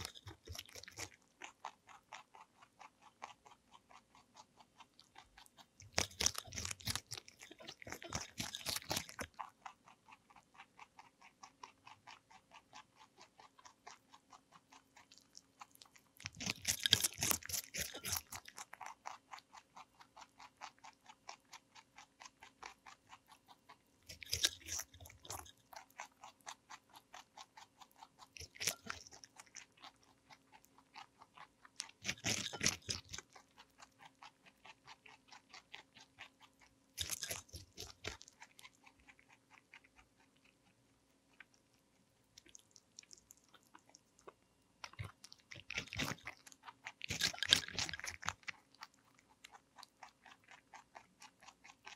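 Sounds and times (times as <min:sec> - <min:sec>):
rabbit chewing cucumber: 0:00.0 - 0:51.9
crunchy bite: 0:05.4 - 0:09.5, 0:15.0 - 0:21.4, 0:24.1 - 0:40.0, 0:42.4 - 0:51.9.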